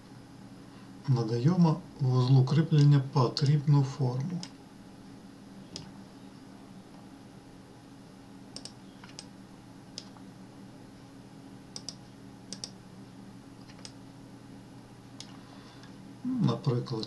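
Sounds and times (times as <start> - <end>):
faint low hum: 0.0 - 17.0
mouse and keyboard clicks: 8.6 - 9.3, 11.8 - 12.8, 13.6 - 14.0.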